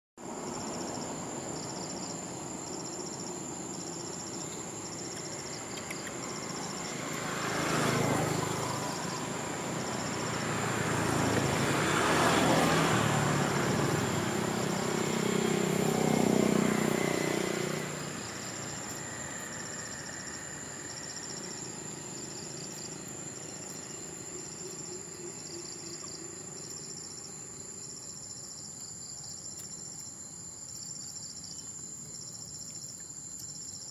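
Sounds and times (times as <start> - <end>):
insects chirping: 0.2 - 33.9
vehicle passing: 4.0 - 26.6.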